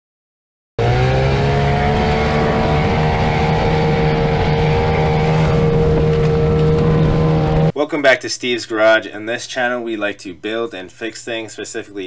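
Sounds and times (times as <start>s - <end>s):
outboard motor running: 0.8s - 7.7s.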